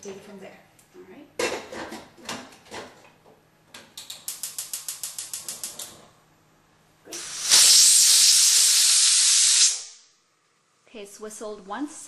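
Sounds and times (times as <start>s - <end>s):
pressure cooker whistling steam: 7.1s - 10.1s.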